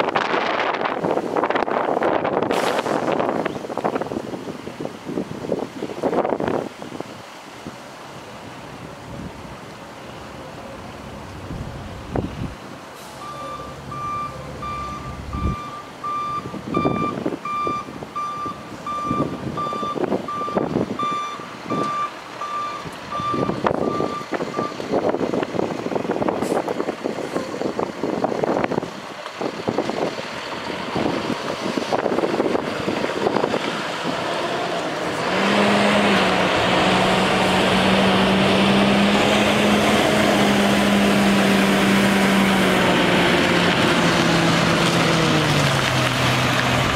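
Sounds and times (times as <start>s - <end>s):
diesel engine running: 9.1s - 46.9s
truck backup alarm beeping: 13.0s - 24.9s.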